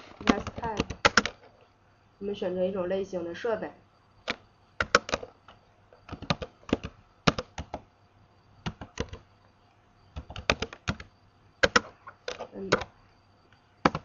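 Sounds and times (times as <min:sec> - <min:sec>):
keyboard typing clicks: 0:00.2 - 0:01.4, 0:04.2 - 0:07.8, 0:08.6 - 0:09.2, 0:10.2 - 0:12.9.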